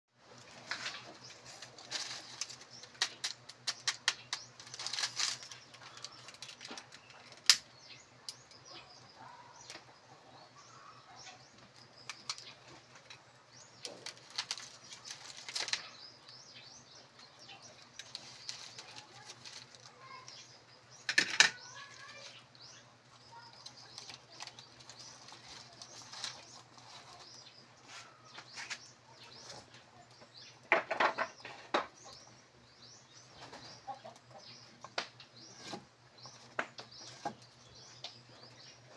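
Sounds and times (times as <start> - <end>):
small birds chirping: 0.2 - 38.9
kindling sticks snapping: 0.7 - 7.7, 13.8 - 15.9.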